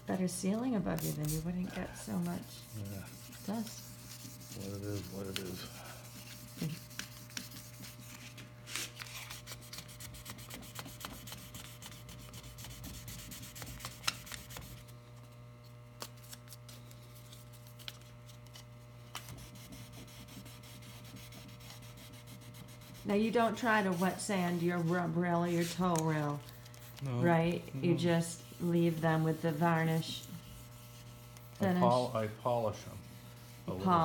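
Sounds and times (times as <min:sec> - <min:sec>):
electrical hum: 0:00.0 - 0:34.0
wet sanding rubbing strokes: 0:00.9 - 0:08.4, 0:09.0 - 0:14.8, 0:19.1 - 0:26.5, 0:27.4 - 0:34.0.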